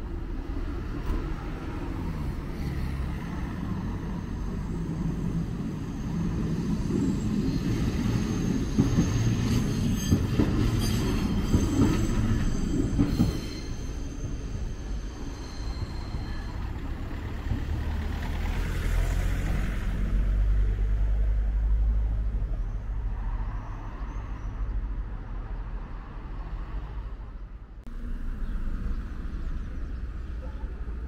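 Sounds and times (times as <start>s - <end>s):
vehicles passing rumble: 14.2s - 31.0s.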